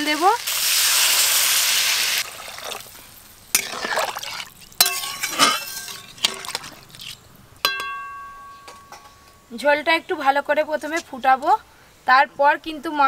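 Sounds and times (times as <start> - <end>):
ladle stirring and sloshing curry: 3.5 - 7.2
ladle clinking against pan: 4.8 - 6.6, 7.6 - 9.2.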